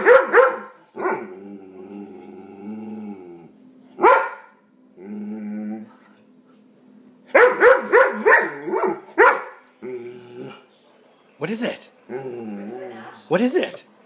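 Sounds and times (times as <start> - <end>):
dog barking: 0.0 - 1.3, 4.0 - 4.5, 7.3 - 9.6.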